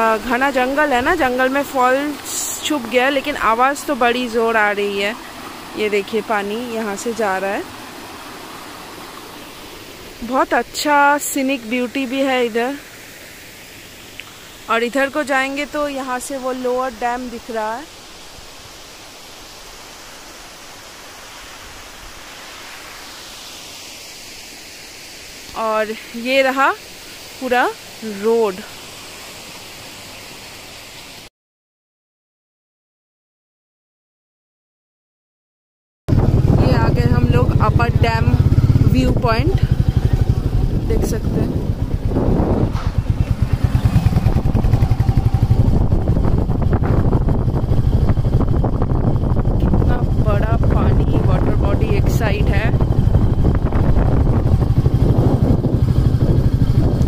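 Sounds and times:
waterfall rushing: 0.0 - 31.3
vehicle engine rumbling: 36.1 - 57.0
wind buffeting microphone: 36.1 - 57.0.

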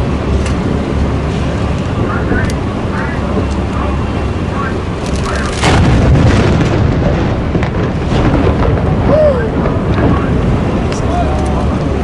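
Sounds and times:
heavy rumbling: 0.0 - 12.0
loud boom: 5.6 - 10.9.

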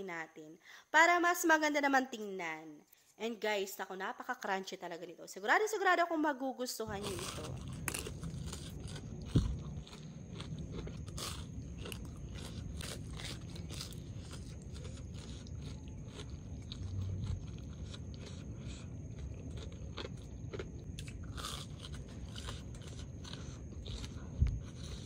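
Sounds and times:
crunchy chewing: 6.9 - 25.0.

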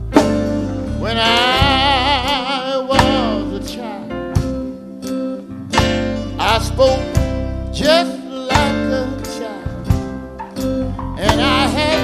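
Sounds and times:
guitar and band backing: 0.0 - 12.0
man singing gospel song: 0.8 - 4.7, 6.2 - 10.1, 11.0 - 12.0.

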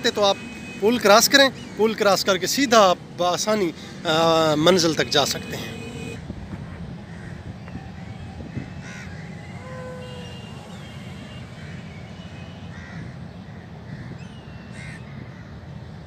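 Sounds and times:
crows cawing: 7.0 - 8.1, 8.7 - 10.5, 11.5 - 11.9, 12.6 - 14.2, 14.8 - 15.6.

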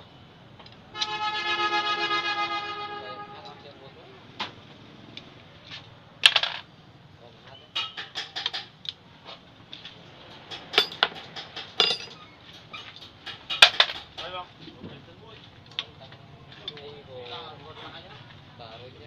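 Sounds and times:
steel rod clinking on metal: 7.7 - 8.8, 10.3 - 14.3.

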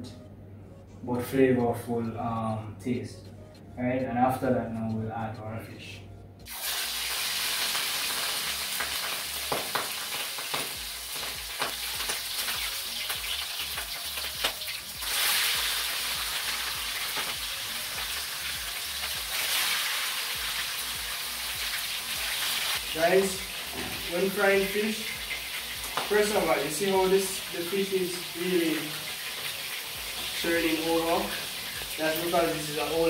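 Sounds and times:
fish sizzling in hot oil: 6.5 - 33.0
crackling pops of oil: 9.5 - 12.6.

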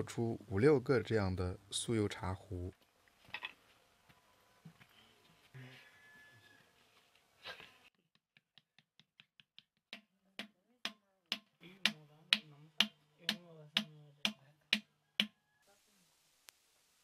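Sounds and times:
wooden paddle beating clay pot: 7.9 - 15.4.

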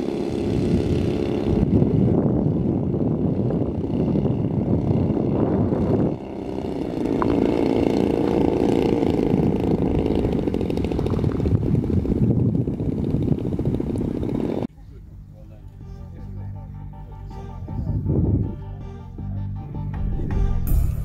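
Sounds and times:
model aircraft engines running: 0.0 - 14.7.

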